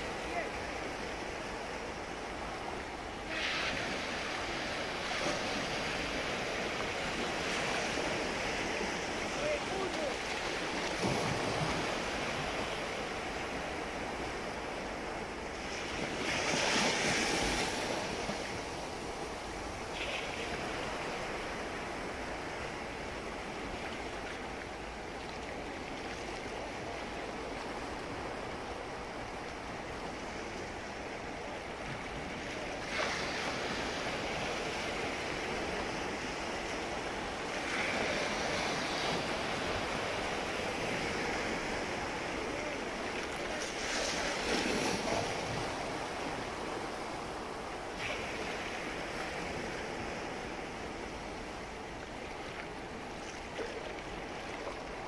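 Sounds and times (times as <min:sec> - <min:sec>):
waves breaking on beach: 0:00.0 - 0:55.0.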